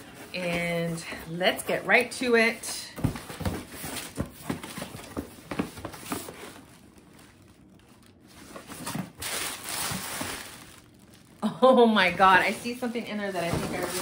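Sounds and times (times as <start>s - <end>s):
cardboard packaging crinkling: 3.3s - 14.0s.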